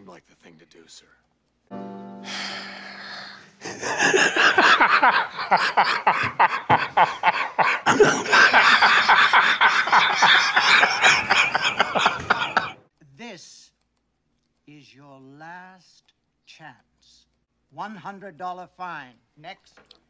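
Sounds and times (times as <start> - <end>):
men laughing: 3.6 - 12.8.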